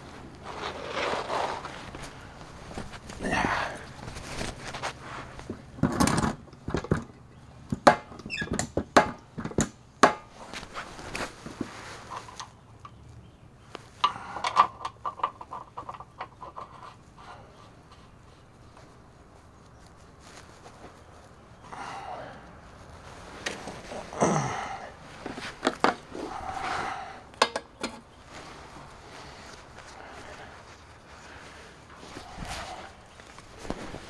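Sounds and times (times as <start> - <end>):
scuffing under truck: 0.0 - 6.2, 10.3 - 12.4, 18.1 - 27.1, 28.2 - 34.0
tools knocking and clicking: 27.4 - 28.0.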